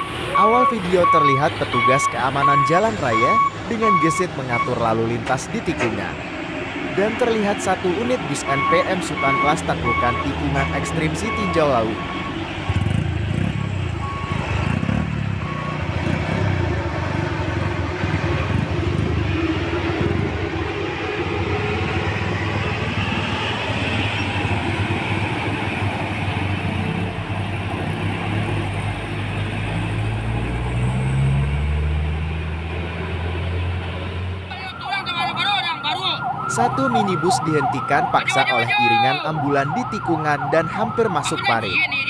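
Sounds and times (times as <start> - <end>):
bus diesel engine running: 0.0 - 36.3
heavy engine revving: 8.6 - 20.3, 21.5 - 34.4.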